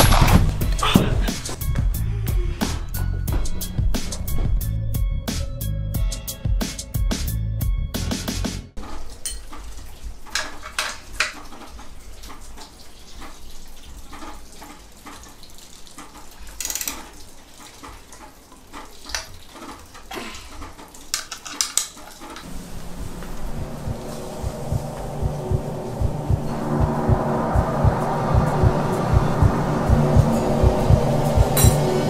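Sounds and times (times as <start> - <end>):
hard objects clinking and knocking: 0.0 - 1.2
low steady hum: 22.5 - 32.0.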